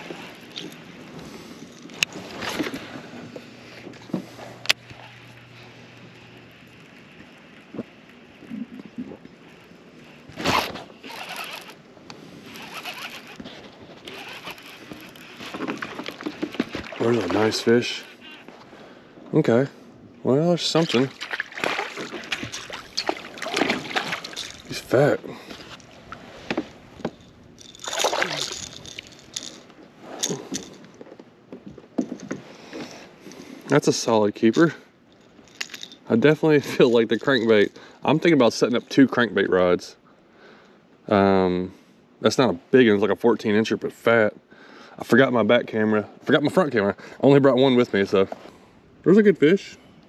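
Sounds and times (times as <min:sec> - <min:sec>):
fishing reel winding: 0:10.5 - 0:11.8, 0:12.5 - 0:13.4, 0:14.1 - 0:15.9, 0:24.2 - 0:24.8, 0:27.6 - 0:29.6
water sloshing and dripping: 0:15.5 - 0:17.8, 0:20.6 - 0:25.0, 0:27.7 - 0:29.1
fish splashing at water surface: 0:20.8 - 0:24.7, 0:27.8 - 0:28.8.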